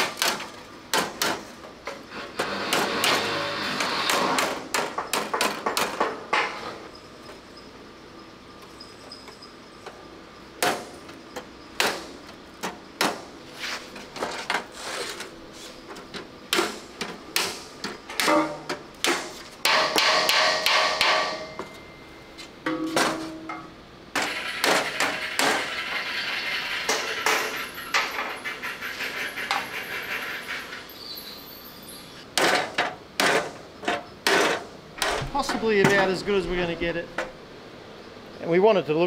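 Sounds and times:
hammer striking steel panel: 17.4s - 21.8s, 22.6s - 25.8s.

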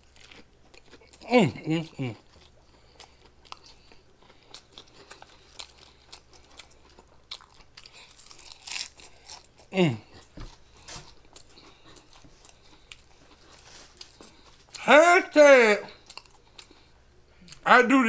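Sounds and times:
chips crunching: 3.5s - 14.8s.

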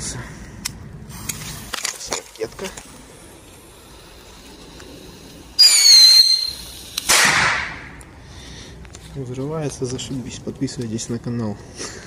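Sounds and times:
firework whistle: 5.6s - 7.8s
firework bang: 5.6s - 8.0s.

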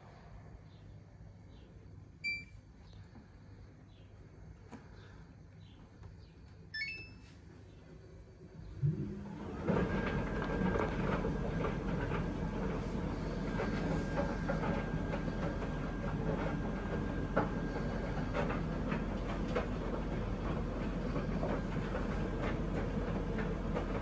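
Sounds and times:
electronic chime: 2.3s - 2.5s, 6.8s - 7.2s
dryer drum rumbling: 8.7s - 24.0s
load tumbling clicks and taps: 9.6s - 24.0s.

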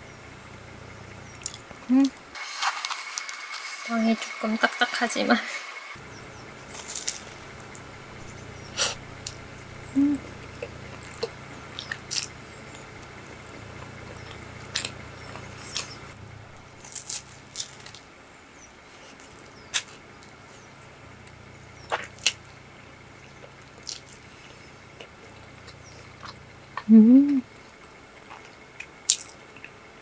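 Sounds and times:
steady low hum: 0.0s - 30.0s
person chewing sandwich: 6.7s - 7.8s, 21.8s - 22.5s, 23.4s - 26.9s, 27.5s - 29.8s
soft crunches: 6.7s - 7.8s
person humming: 9.9s - 10.4s, 26.8s - 27.5s.

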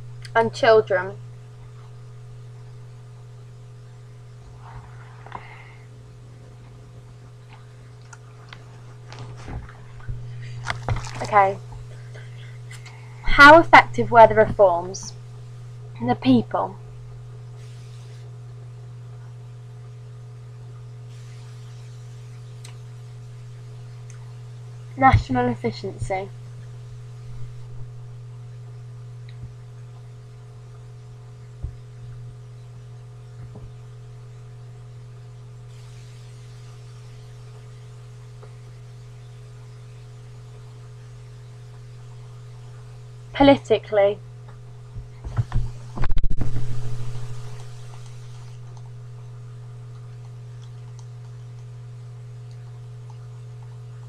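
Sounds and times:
low electrical hum: 0.0s - 54.0s
faint hiss: 17.5s - 18.4s, 21.0s - 22.9s, 35.7s - 38.8s
light hiss: 17.5s - 18.4s, 20.9s - 24.8s, 35.6s - 43.1s.

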